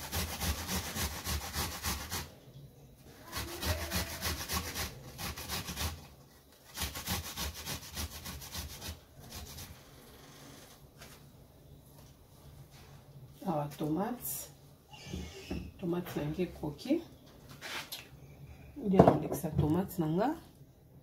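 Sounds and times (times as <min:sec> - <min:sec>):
tomato scraping on metal grater: 0:03.1 - 0:09.8.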